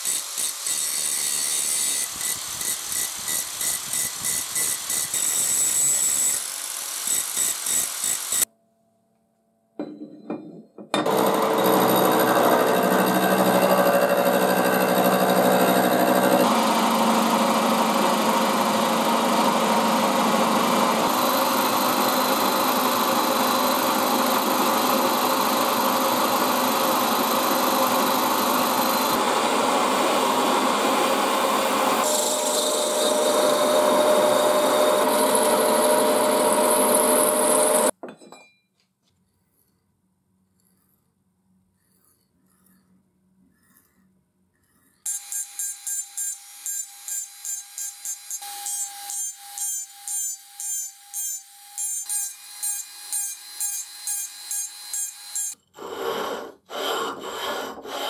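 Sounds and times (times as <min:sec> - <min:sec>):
milling machine whine: 0:11.0 - 0:37.9.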